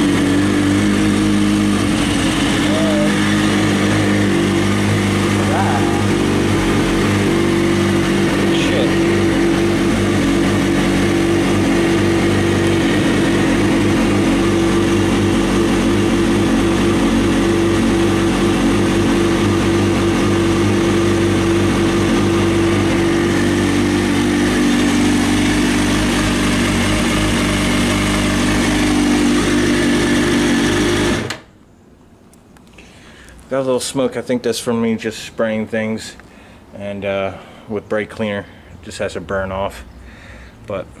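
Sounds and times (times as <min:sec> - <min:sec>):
motorcycle engine idling: 0:00.0 - 0:31.1.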